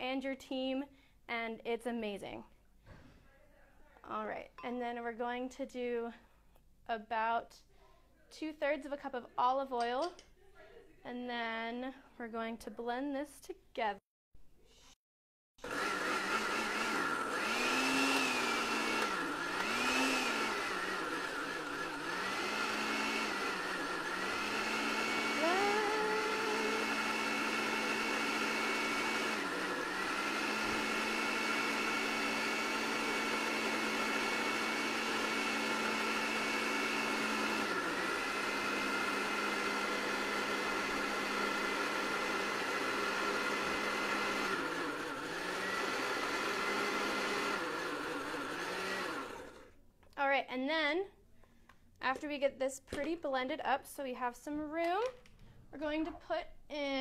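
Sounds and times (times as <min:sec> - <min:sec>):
blender motor running: 0:15.6 - 0:49.8.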